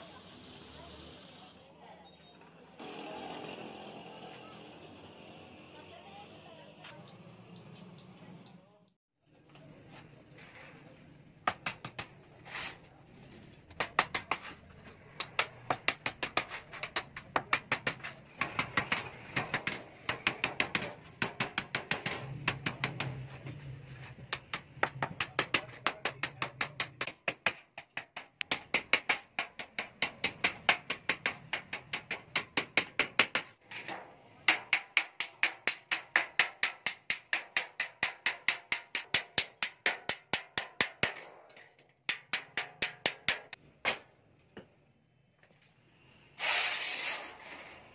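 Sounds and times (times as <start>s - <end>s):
hammer striking sheet metal: 28.2s - 44.1s.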